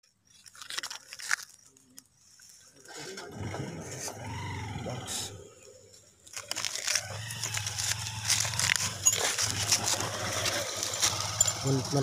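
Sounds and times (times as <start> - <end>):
hands handling clicks and rustles: 0.0 - 2.9, 6.2 - 11.6.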